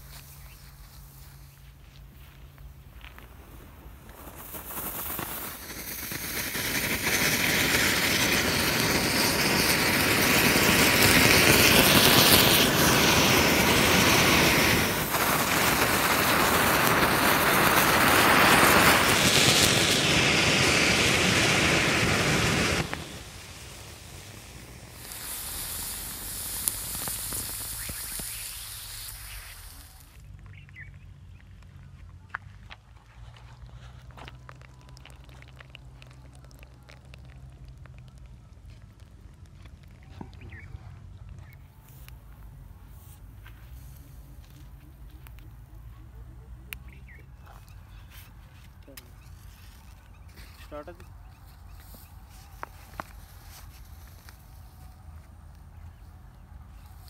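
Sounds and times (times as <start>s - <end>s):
firework fountain hissing: 2.7s - 30.3s, 41.8s - 57.0s.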